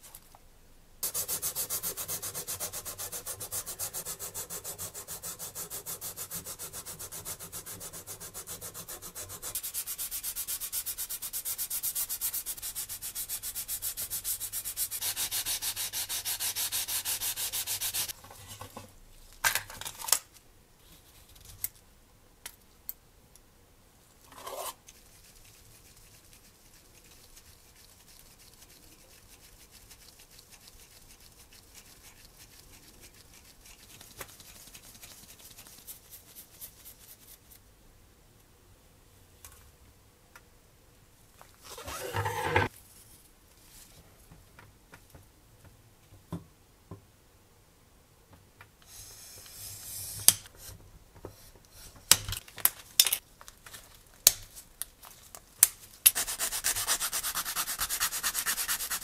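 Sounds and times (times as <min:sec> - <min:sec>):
hand sanding plastic: 0:01.0 - 0:18.2, 0:56.1 - 0:59.0.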